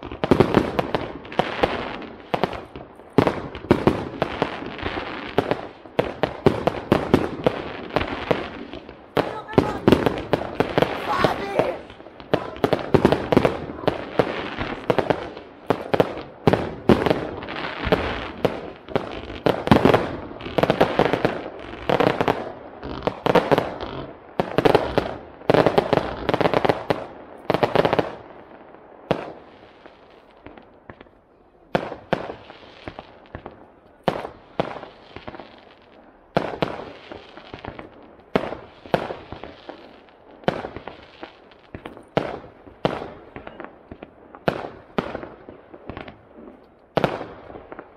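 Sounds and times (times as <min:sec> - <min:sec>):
fireworks bursting and crackling: 0:00.0 - 0:47.9.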